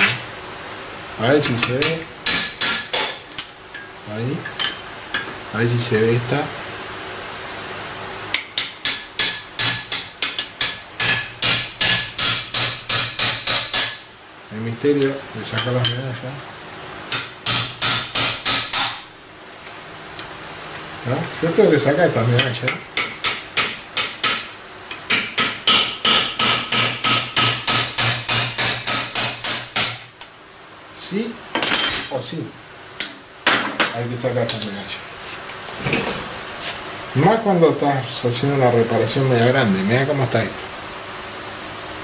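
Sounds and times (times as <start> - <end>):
hammer striking metal: 1.6 - 3.2, 8.4 - 14.0, 17.1 - 19.0, 22.4 - 30.0.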